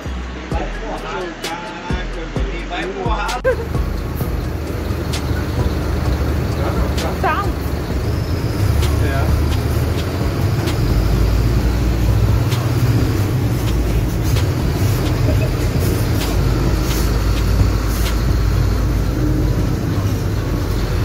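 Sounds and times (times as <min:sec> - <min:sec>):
deep rumble: 0:00.0 - 0:21.0
sharp ticks: 0:08.7 - 0:13.0, 0:13.6 - 0:18.9.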